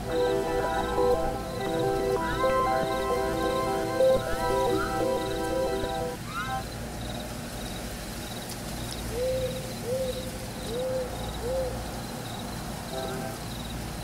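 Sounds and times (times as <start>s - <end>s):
app music: 0.0s - 6.6s
crickets chirping: 0.0s - 8.4s, 10.6s - 14.0s.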